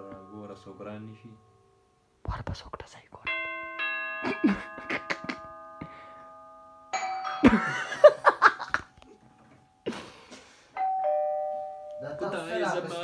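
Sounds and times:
electronic doorbell chime: 0:03.3 - 0:09.9, 0:10.8 - 0:13.0
person laughing: 0:04.2 - 0:05.5, 0:07.4 - 0:09.2, 0:09.8 - 0:10.4.

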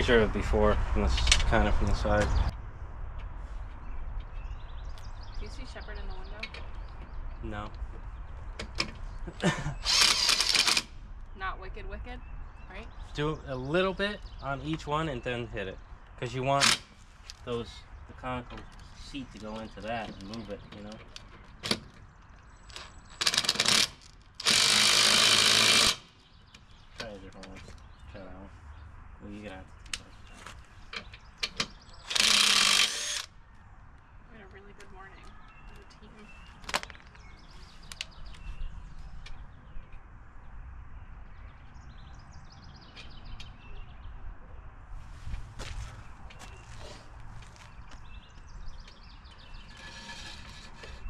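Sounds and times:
small birds chirping: 0:01.9 - 0:51.0
impact wrench rattling bursts: 0:09.8 - 0:10.9, 0:23.2 - 0:26.1, 0:32.1 - 0:33.3.

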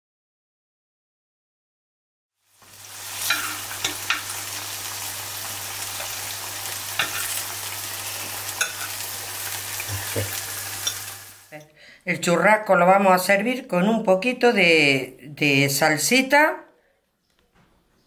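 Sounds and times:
oil crackles and pops: 0:02.4 - 0:11.5
potatoes deep-frying: 0:02.4 - 0:11.6.

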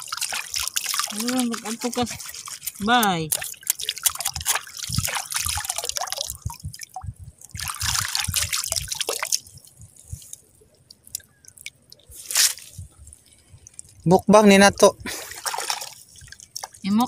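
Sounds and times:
hands splashing in water: 0:00.0 - 0:06.6, 0:07.5 - 0:09.6, 0:15.1 - 0:16.8
water drips and trickles: 0:00.0 - 0:17.0.

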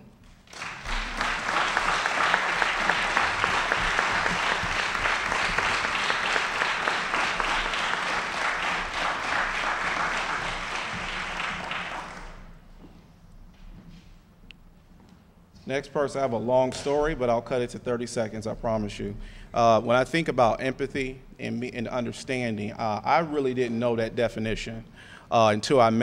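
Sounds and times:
audience applauding: 0:00.4 - 0:12.5.

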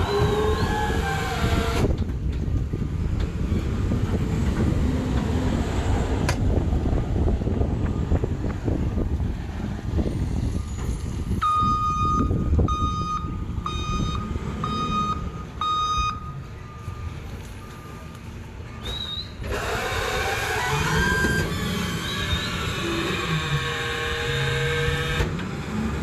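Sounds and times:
truck engine noise: 0:00.0 - 0:26.0
back-up alarm beeping: 0:11.4 - 0:19.2.

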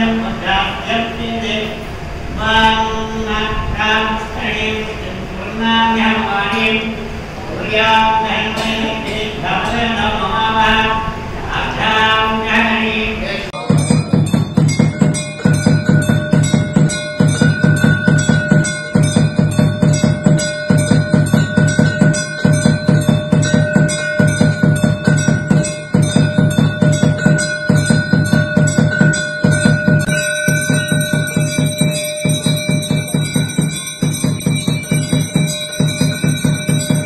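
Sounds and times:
temple bells clanging: 0:08.1 - 0:12.8, 0:13.6 - 0:37.0
drum beats: 0:13.6 - 0:37.0.

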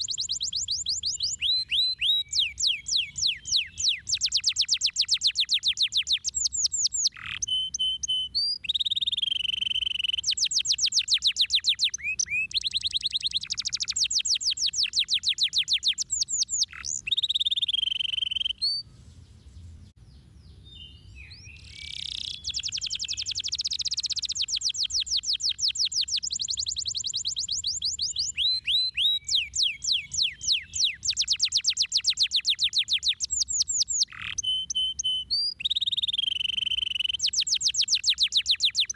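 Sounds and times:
canary singing: 0:00.0 - 0:18.9, 0:20.1 - 0:38.9.

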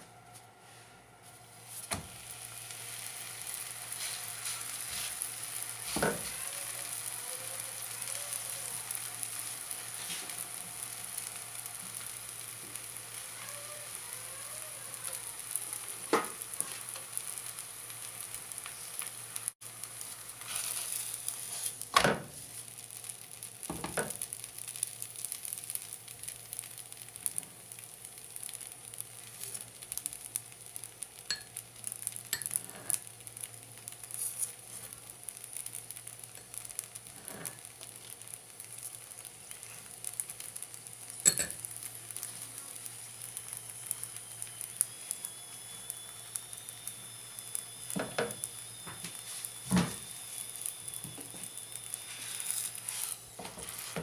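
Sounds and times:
bread sizzling in oil: 0:00.6 - 0:54.0.

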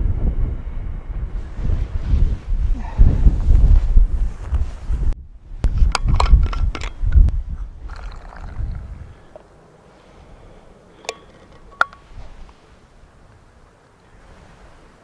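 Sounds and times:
wind rumble on microphone: 0:00.0 - 0:15.0
flask clicks and scrapes: 0:05.6 - 0:07.3.

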